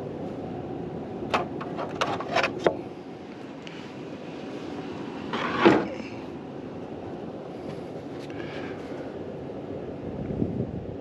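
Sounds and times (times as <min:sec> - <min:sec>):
steady low rumble: 0:00.0 - 0:11.0
scraping rustle: 0:01.6 - 0:02.8.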